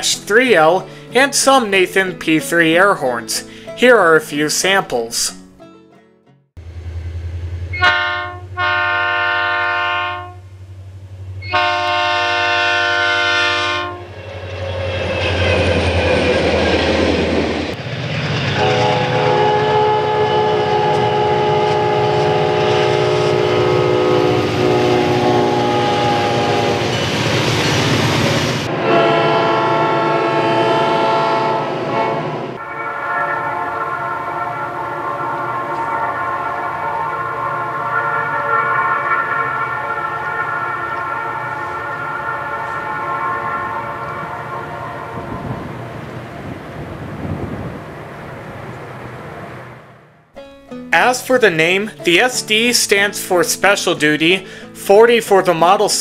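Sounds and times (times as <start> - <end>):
low diesel engine drone: 6.6 - 29.4, 32.6 - 47.2
passing train rumble: 6.6 - 55.8
diesel locomotive air horn blasts: 7.5 - 10.5, 11.4 - 14.2, 18.6 - 27.8, 28.4 - 45.9, 54.4 - 54.8.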